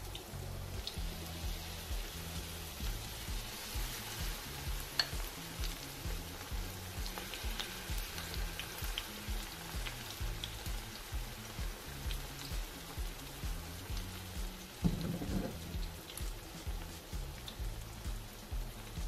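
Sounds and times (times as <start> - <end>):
background music with low beat: 0.0 - 19.0
fritters sizzling in hot oil: 0.0 - 19.0.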